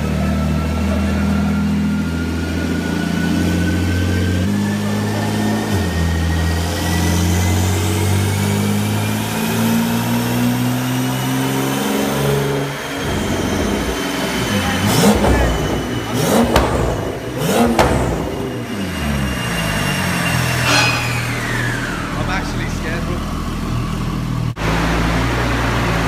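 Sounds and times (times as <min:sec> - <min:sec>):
engine blips: 0:00.0 - 0:25.2
car engine revving under load: 0:00.0 - 0:26.0
turbo whine: 0:12.2 - 0:24.4
exhaust cracks: 0:13.2 - 0:18.8.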